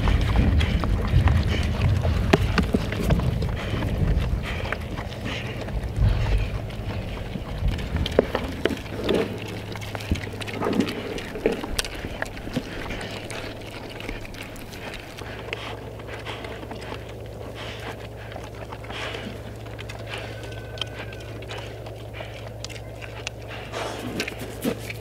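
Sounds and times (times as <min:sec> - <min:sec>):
wind on microphone: 0:00.0 - 0:15.3
pigs crunching feed pellets: 0:00.0 - 0:25.0.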